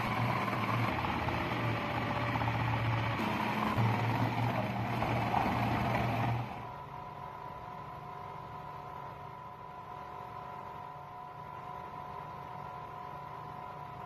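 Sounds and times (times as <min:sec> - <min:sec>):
food processor motor running: 0:00.0 - 0:06.7
low hum with faint whine: 0:00.0 - 0:14.0.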